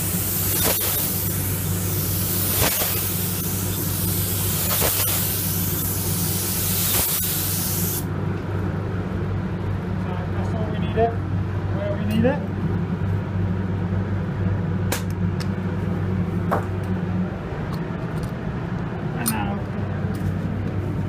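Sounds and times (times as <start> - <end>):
paint spray gun hissing: 0.0 - 8.1
steady low hum: 0.0 - 21.0.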